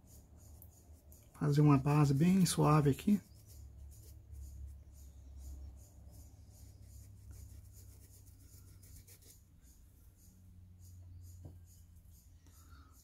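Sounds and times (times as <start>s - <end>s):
paintbrush scratching on canvas: 1.4s - 9.5s.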